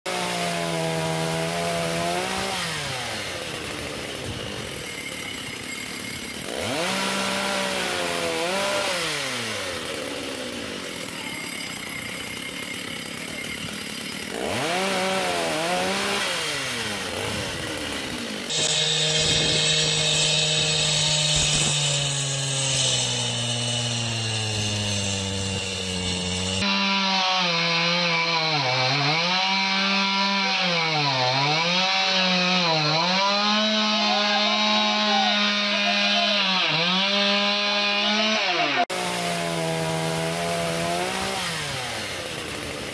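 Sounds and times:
chainsaws cutting limbs: 0.1s - 42.9s.

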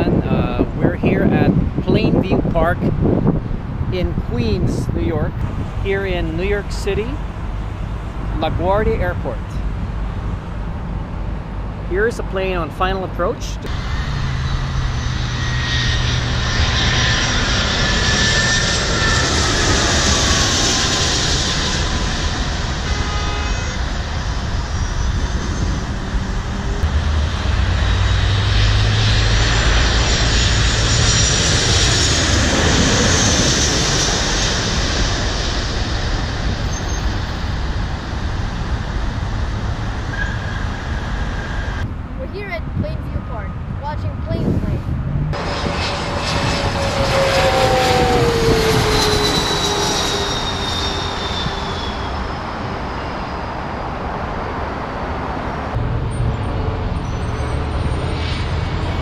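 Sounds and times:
jet airliners passing overhead: 0.0s - 59.0s.

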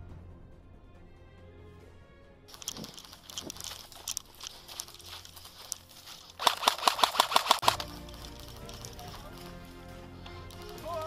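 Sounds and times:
footsteps in dry grass: 2.5s - 11.0s
airsoft rifle full-auto burst: 4.4s - 9.3s.

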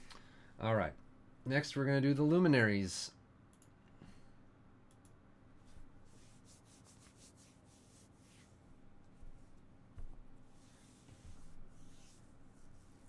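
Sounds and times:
soft clicks: 3.5s - 3.9s, 4.8s - 5.2s
soft rustles: 5.6s - 13.0s.

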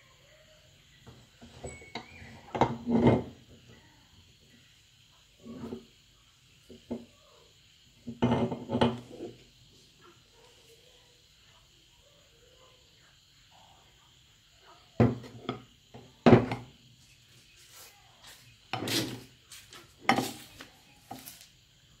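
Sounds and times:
metal parts knocking on wooden table: 8.1s - 9.3s.

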